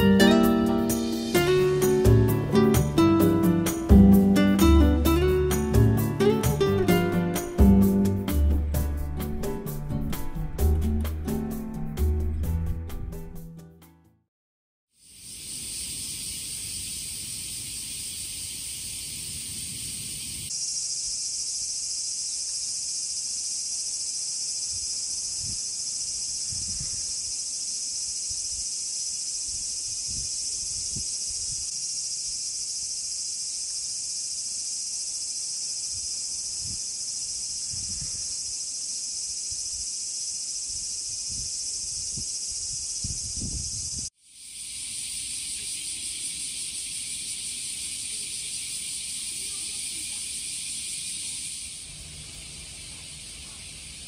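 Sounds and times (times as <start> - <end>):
insects chorusing: 0.0 - 10.0, 15.0 - 54.0.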